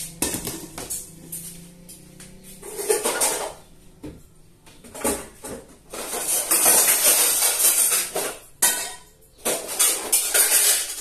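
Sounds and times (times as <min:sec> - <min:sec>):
dishes and pots clattering: 0:02.6 - 0:11.0.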